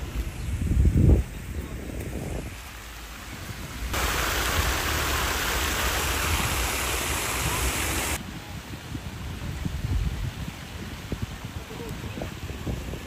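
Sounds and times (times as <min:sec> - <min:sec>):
steady rushing noise: 0:03.8 - 0:08.2.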